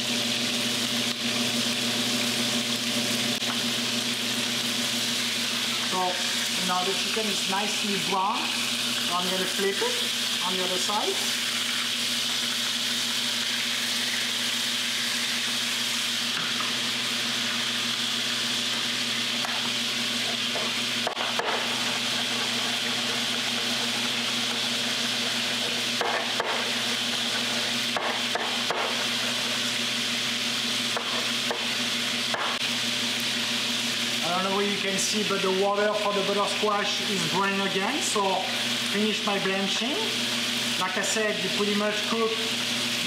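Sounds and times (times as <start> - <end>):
chicken frying in a pan: 0.0 - 43.0
knife chopping on wooden board: 20.5 - 21.7, 26.0 - 26.7, 27.9 - 29.0, 32.3 - 32.6.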